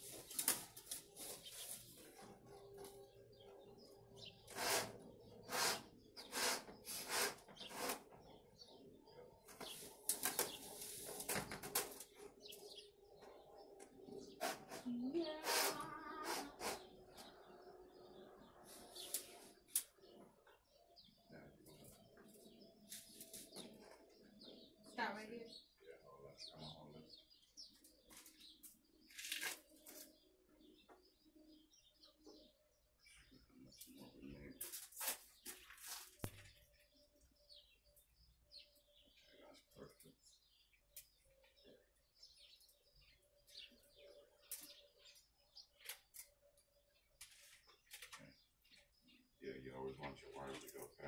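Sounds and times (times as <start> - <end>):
brief rustle: 29.1 - 30.1.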